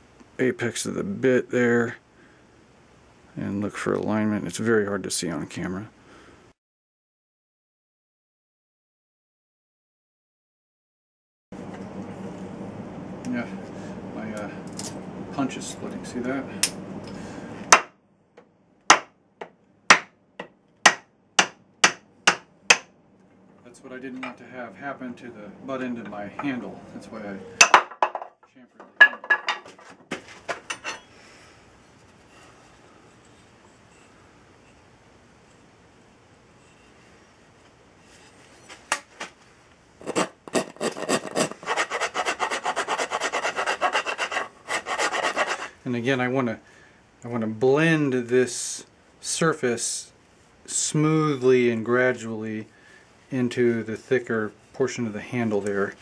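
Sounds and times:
hammer striking metal punch: 20.9 - 22.9
file scraping wood: 40.0 - 45.8.

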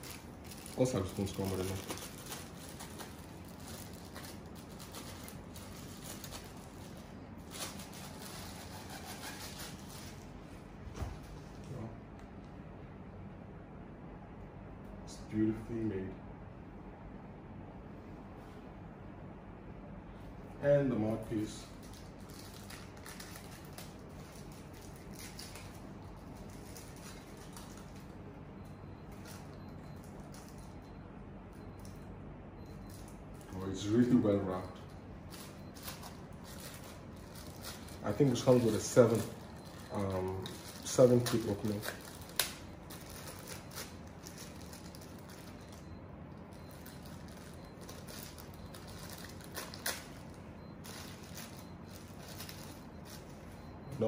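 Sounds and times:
wrapping rustling: 0.0 - 10.6, 21.6 - 30.8, 32.7 - 53.7
steady low hum: 0.0 - 54.0.

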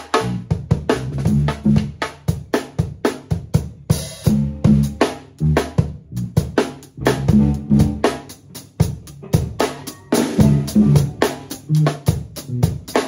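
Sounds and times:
drum kit solo: 0.0 - 13.0.

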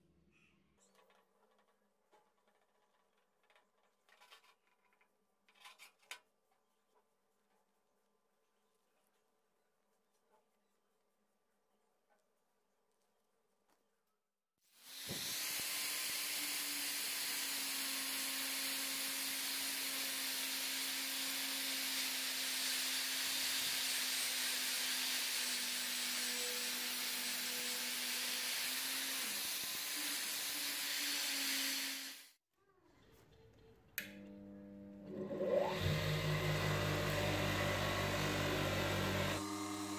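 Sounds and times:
angle grinder on steel: 14.9 - 32.4, 35.0 - 39.9.

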